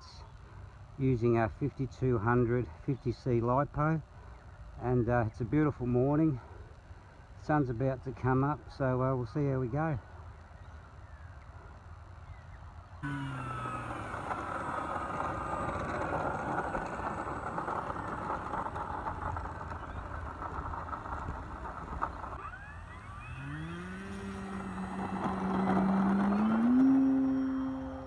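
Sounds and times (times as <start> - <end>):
electric motor and propeller running: 13.0 - 28.0.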